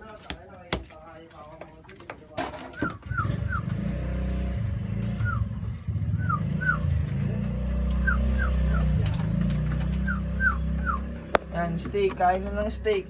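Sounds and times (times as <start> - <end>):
pigeons chirping: 2.7 - 4.0, 7.9 - 11.5.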